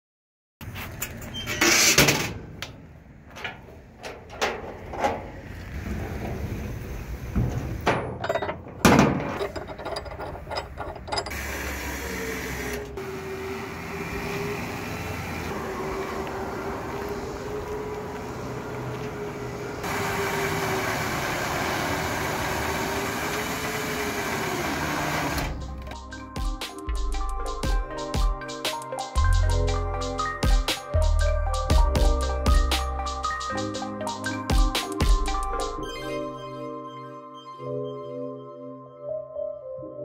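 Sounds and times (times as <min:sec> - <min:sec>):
clanks on steel deck: 0:07.4 - 0:11.4
electric winch motor whining: 0:09.4 - 0:25.9
music with a beat: 0:25.6 - 0:36.0.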